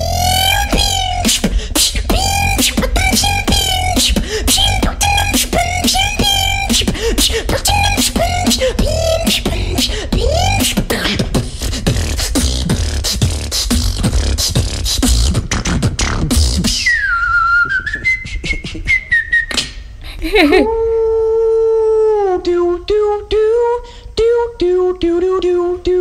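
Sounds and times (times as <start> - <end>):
high drawn-out vocal tone: 0.0 - 14.2, 20.2 - 26.0
person beatboxing: 0.0 - 17.0.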